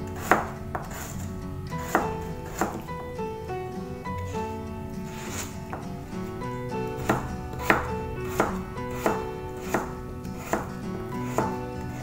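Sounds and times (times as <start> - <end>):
knife chopping on plastic board: 0.1 - 1.2, 1.8 - 2.9, 6.9 - 12.0.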